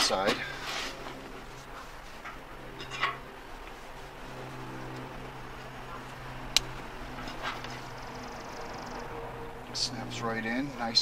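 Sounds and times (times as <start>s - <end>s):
canvas fabric rustling: 0.1s - 8.1s.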